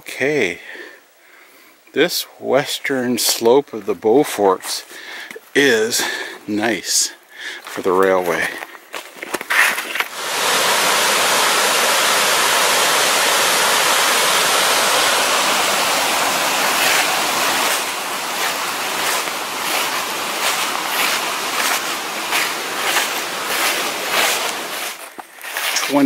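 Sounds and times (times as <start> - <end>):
rush of flowing water: 10.1 - 25.0
footsteps: 13.8 - 26.0.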